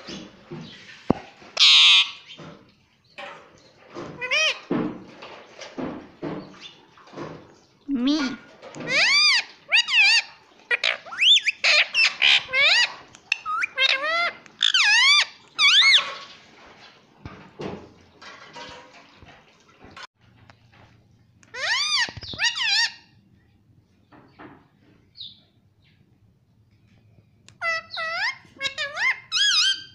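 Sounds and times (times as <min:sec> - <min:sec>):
parakeet calling: 0:01.6 - 0:02.4, 0:08.8 - 0:16.1, 0:21.5 - 0:23.0, 0:27.6 - 0:29.9.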